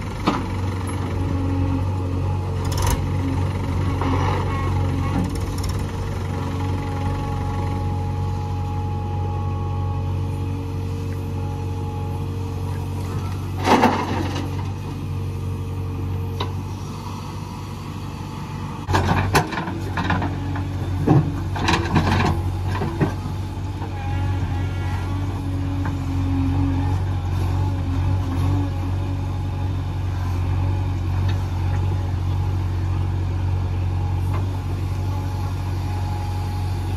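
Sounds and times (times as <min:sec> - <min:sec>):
diesel machinery engine running: 0:00.0 - 0:36.9.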